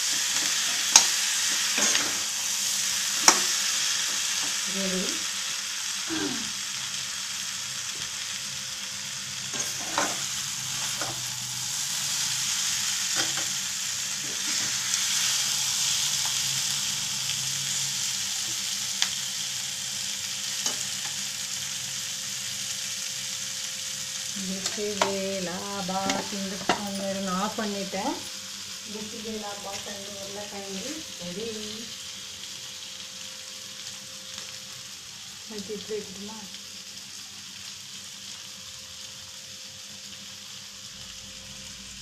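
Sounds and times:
food sizzling in oil: 0.0s - 42.0s
steel spoon scraping pan: 9.5s - 11.2s.

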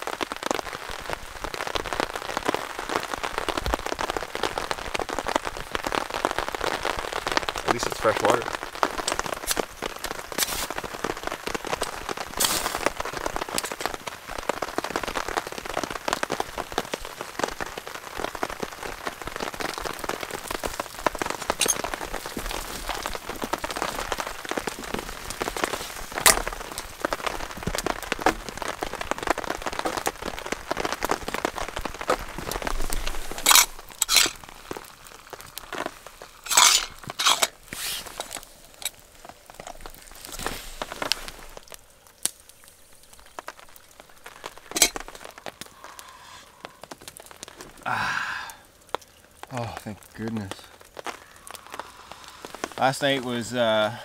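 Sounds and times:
campfire crackling: 0.0s - 54.0s
rain patter: 0.0s - 54.0s.

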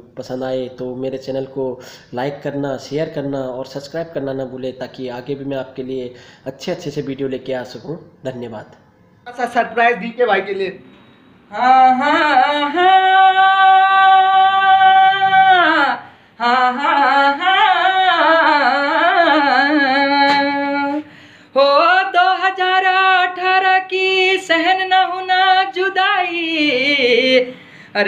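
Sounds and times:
young man singing unaccompanied: 11.5s - 27.6s.

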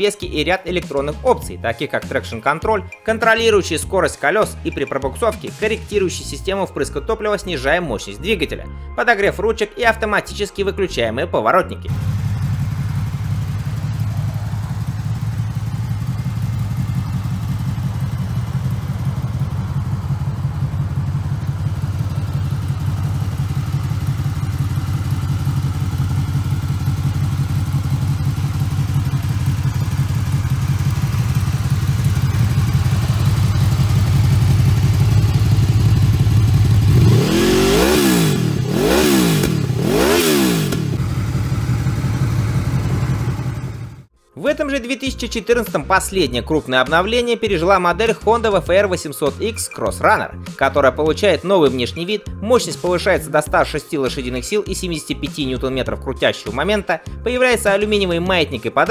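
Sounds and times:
motorcycle engine idling: 11.9s - 44.1s
motorcycle engine revving: 11.9s - 44.1s.

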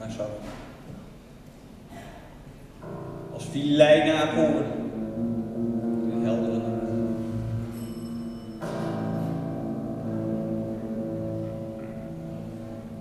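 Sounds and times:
piano chords: 2.7s - 13.0s
high ringing note: 2.8s - 13.0s.

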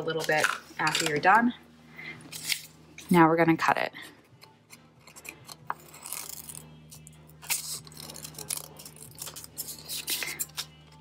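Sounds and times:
scissors snipping paper: 7.4s - 10.7s.

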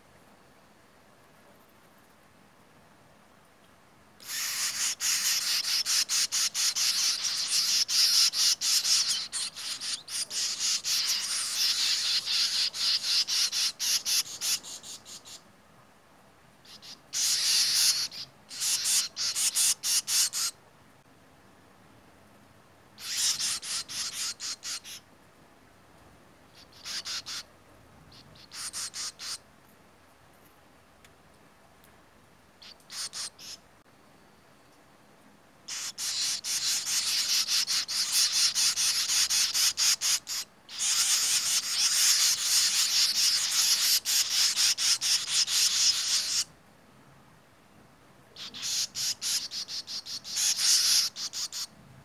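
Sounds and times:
nestlings chittering begging calls: 4.2s - 15.4s, 16.6s - 20.6s, 23.0s - 25.0s, 26.6s - 27.5s, 28.1s - 29.4s, 32.6s - 33.6s, 35.7s - 46.5s, 48.4s - 51.7s.

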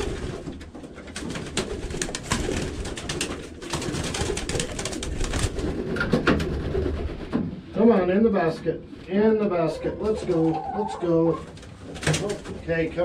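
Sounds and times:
wings flapping: 0.0s - 7.4s, 11.4s - 12.6s
pigeons cooing: 9.2s - 12.7s.

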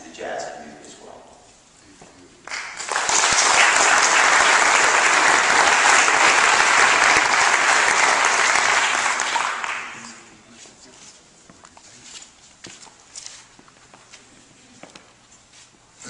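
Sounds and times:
audience applauding: 2.5s - 10.3s.

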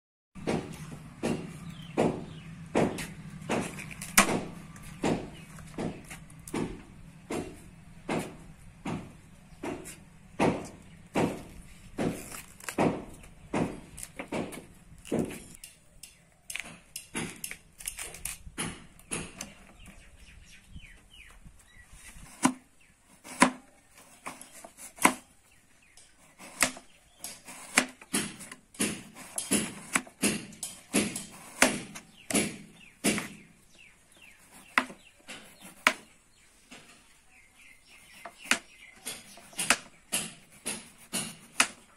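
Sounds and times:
knife chopping on plastic board: 0.4s - 15.6s, 22.2s - 25.3s, 26.2s - 33.6s, 34.2s - 36.9s, 38.0s - 41.9s.

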